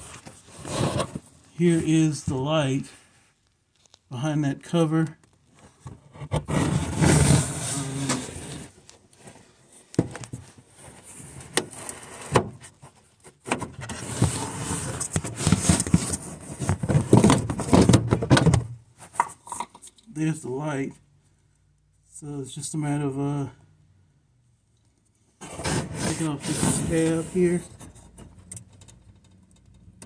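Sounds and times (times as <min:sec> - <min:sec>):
plastic scraping and rubbing: 0:00.0 - 0:01.8, 0:05.6 - 0:09.4, 0:10.2 - 0:19.6, 0:25.4 - 0:28.5.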